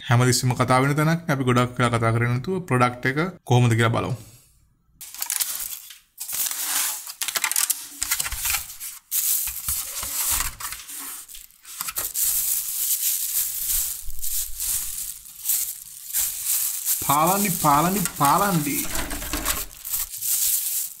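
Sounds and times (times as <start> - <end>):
food wrapping crinkling: 5.0 - 21.0.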